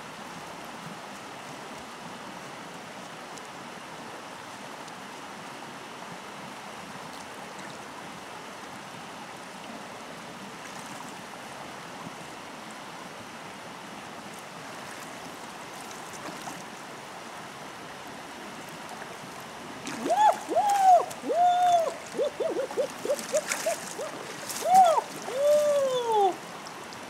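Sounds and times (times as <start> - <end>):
river flowing: 0.0 - 27.0
loud high cries: 20.0 - 26.4.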